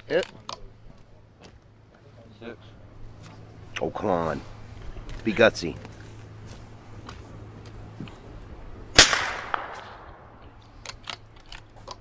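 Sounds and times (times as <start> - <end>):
rifle shot with echo: 8.9 - 10.4.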